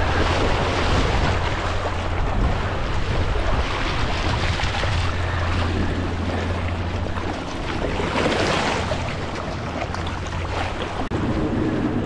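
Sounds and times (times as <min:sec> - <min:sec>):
surf washing over rocks: 0:00.0 - 0:12.0
wind rumbling on microphone: 0:00.0 - 0:12.0.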